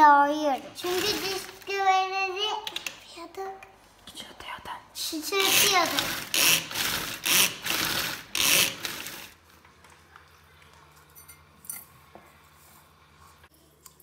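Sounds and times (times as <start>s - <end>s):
pull-cord chopper grinding: 5.4s - 9.3s.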